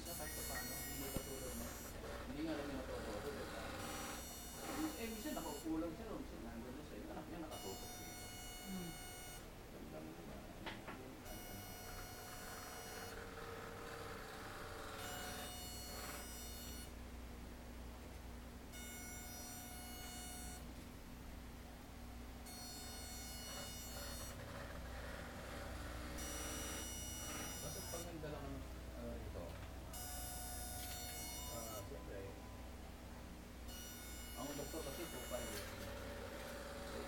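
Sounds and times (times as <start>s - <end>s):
pulsing electronic buzzing tone: 0.0s - 2.5s, 3.2s - 5.9s, 7.5s - 9.5s, 11.3s - 17.0s, 18.7s - 20.7s, 22.4s - 28.3s, 29.9s - 32.7s, 33.6s - 37.0s
low electrical hum: 0.0s - 37.0s.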